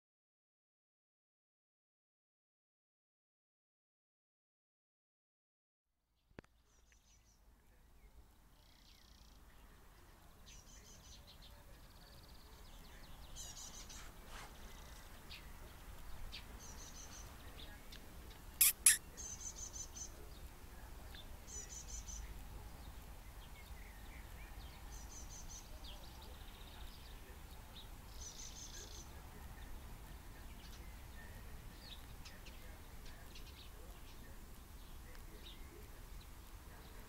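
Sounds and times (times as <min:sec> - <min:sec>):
bird trilling and chirping: 0:18.6 - 0:19.6.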